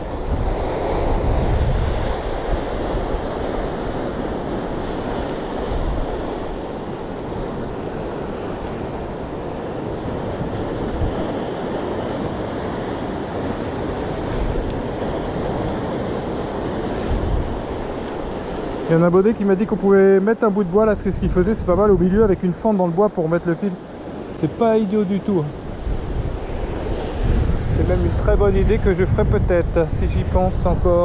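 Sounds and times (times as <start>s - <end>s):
wind rumbling on microphone: 0.0s - 31.0s.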